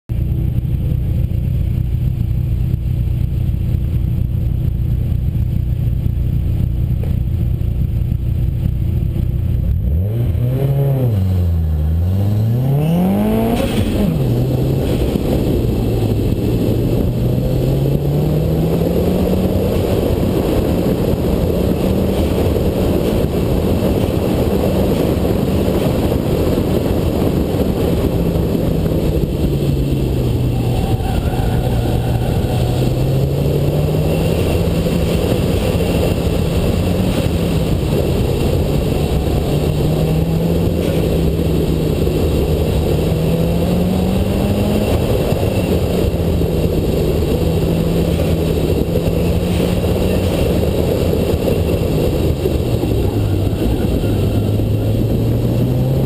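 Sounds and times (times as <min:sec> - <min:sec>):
car engine revving: 0:00.2 - 0:56.0
wind rushing: 0:10.1 - 0:56.0.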